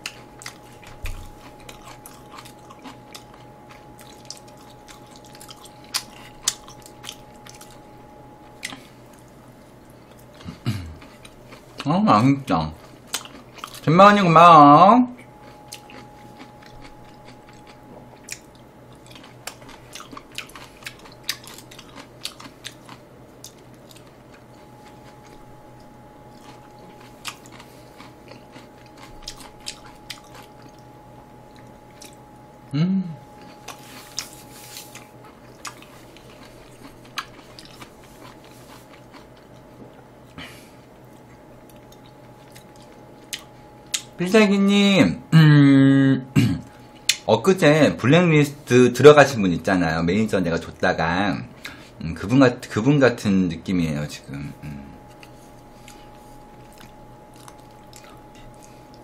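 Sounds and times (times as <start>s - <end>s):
crunchy chewing: 0.0s - 11.9s, 12.6s - 13.9s, 15.1s - 32.6s, 33.3s - 44.2s, 54.6s - 59.0s
faint steady tone: 0.4s - 10.2s
person humming: 10.4s - 11.0s, 32.7s - 33.3s, 45.3s - 46.6s, 54.4s - 55.0s.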